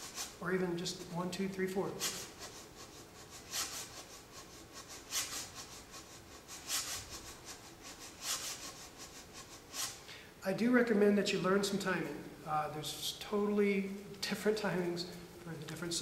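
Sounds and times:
brushes swishing on cajon: 0:00.0 - 0:00.4, 0:02.0 - 0:10.0.

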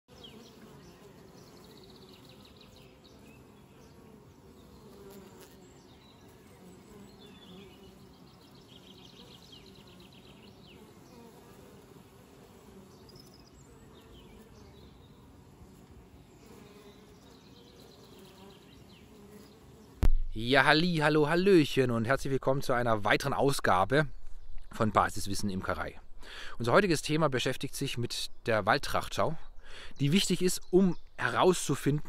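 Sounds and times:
honeybees buzzing: 0:00.1 - 0:20.1.

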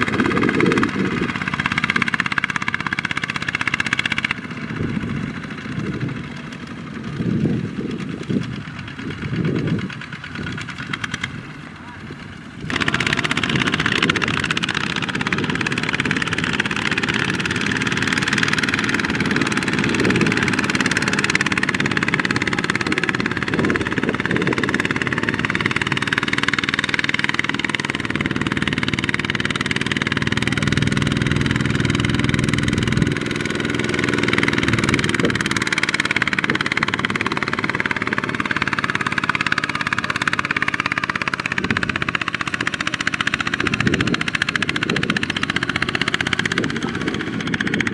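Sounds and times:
tractor diesel engine under load: 0:00.0 - 0:47.9.

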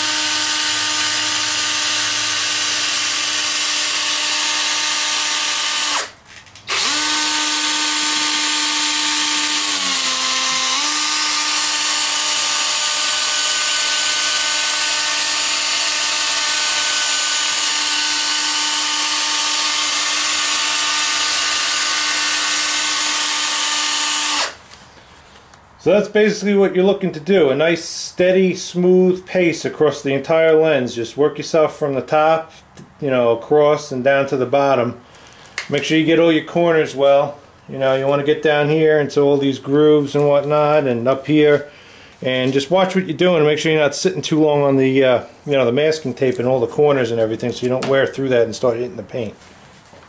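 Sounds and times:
drill motor whine: 0:00.0 - 0:06.1, 0:06.7 - 0:24.6.

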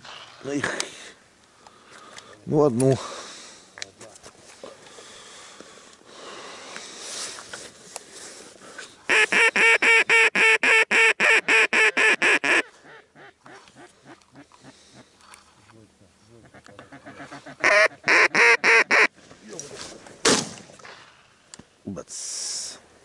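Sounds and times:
duck call quacks: 0:09.1 - 0:15.0, 0:16.4 - 0:19.1.

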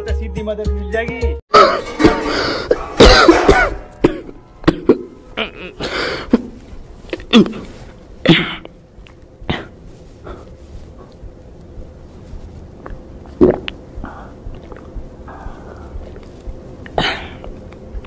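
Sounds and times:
man coughing harshly: 0:01.5 - 0:06.5, 0:07.2 - 0:08.7, 0:09.5 - 0:09.8.

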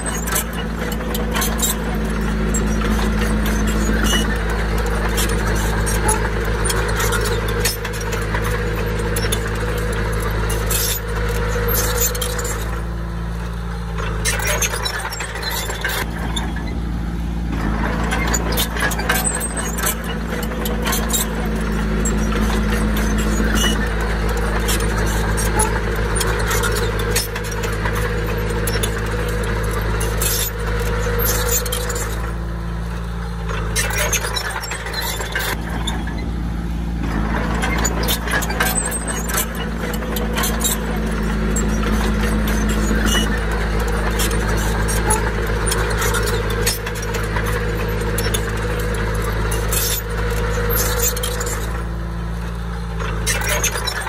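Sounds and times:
bulldozer diesel engine running: 0:00.0 - 0:54.0
metallic clicks and clanks: 0:13.9 - 0:16.8, 0:17.5 - 0:32.4, 0:33.0 - 0:36.3, 0:37.0 - 0:52.0, 0:52.9 - 0:54.0.

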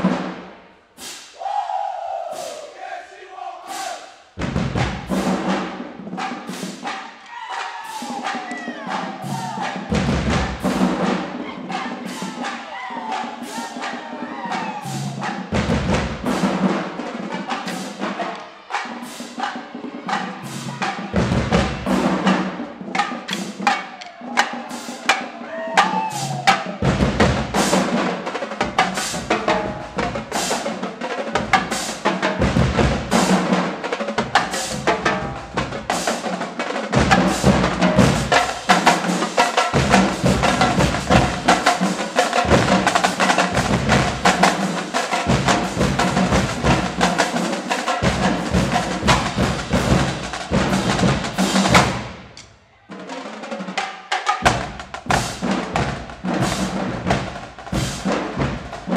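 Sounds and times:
snare drums: 0:00.0 - 0:03.0, 0:03.6 - 0:58.9
bass drums: 0:04.4 - 0:05.6, 0:26.2 - 0:27.9, 0:32.4 - 0:33.5, 0:39.7 - 0:44.6, 0:45.3 - 0:47.3, 0:48.0 - 0:52.4.

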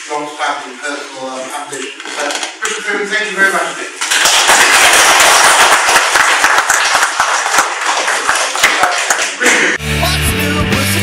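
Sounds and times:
audience applauding: 0:04.0 - 0:09.8.

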